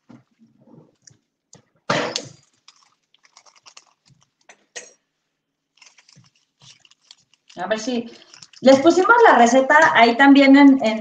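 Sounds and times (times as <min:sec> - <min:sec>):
rustling: 0:02.3 - 0:04.6, 0:05.7 - 0:09.0.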